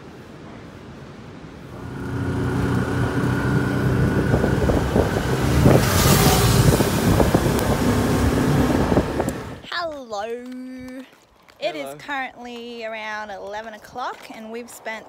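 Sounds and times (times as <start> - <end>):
wind buffeting microphone: 1.2 - 9.7.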